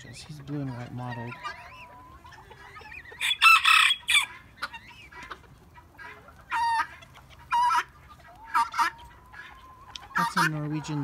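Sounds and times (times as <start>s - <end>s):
chickens calling: 0.0s - 11.0s
rooster crowing: 3.2s - 4.3s.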